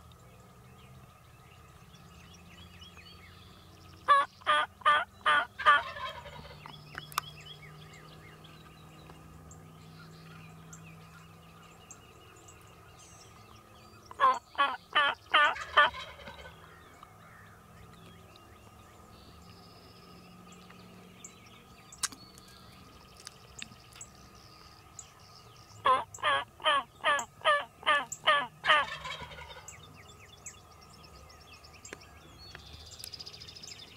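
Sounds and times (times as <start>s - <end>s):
turkey gobbling: 4.1s - 6.7s, 14.1s - 16.6s, 25.8s - 29.7s.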